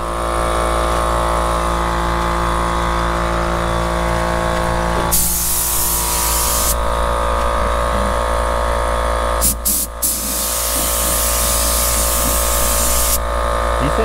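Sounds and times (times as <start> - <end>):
machine whine and hum: 0.0 - 14.0
paint spray gun hissing: 5.1 - 6.8, 9.4 - 13.2.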